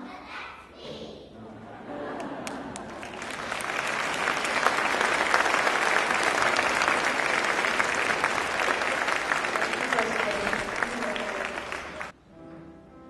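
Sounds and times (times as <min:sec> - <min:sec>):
audience applauding: 0:02.2 - 0:12.2.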